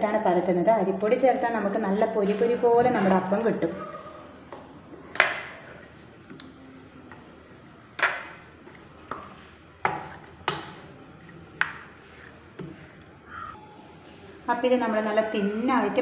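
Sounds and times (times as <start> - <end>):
soft rubbing of dough: 4.1 - 14.5.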